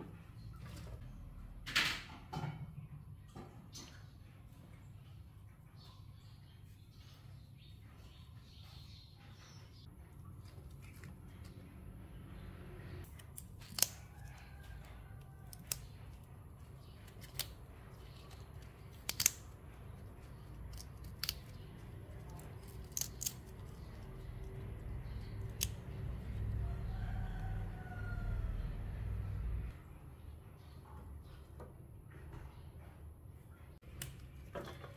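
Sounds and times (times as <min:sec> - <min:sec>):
flower stalks snapping: 0:13.1 - 0:14.4, 0:15.4 - 0:16.2, 0:16.8 - 0:19.6, 0:20.2 - 0:25.9, 0:33.9 - 0:34.4
low steady rumble: 0:19.4 - 0:31.0.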